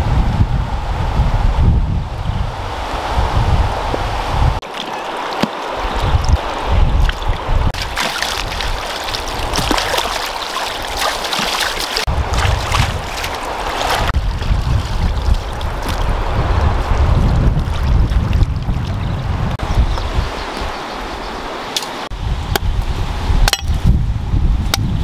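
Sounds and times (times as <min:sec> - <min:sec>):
river rushing: 0:02.6 - 0:17.2, 0:20.2 - 0:22.2
splashing of rinsing in water: 0:04.6 - 0:16.2.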